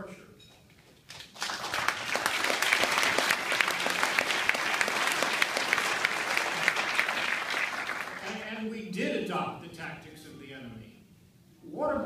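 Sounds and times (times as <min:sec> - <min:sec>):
audience applauding: 0:01.1 - 0:08.4.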